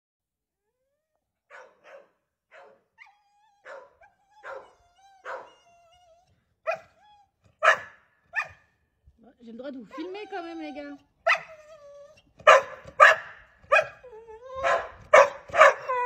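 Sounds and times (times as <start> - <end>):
dog barking: 1.4 - 5.7, 6.6 - 7.0, 7.6 - 8.8, 11.2 - 11.6, 12.4 - 14.0, 14.6 - 16.0.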